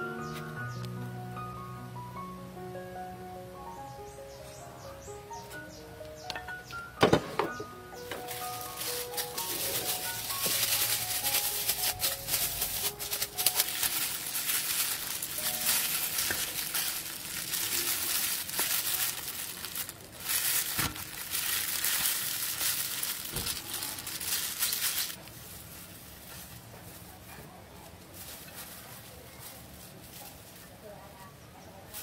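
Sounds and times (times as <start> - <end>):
plastic gloves crinkling: 7.8 - 32.0
fruit crackling and snapping: 8.1 - 26.6.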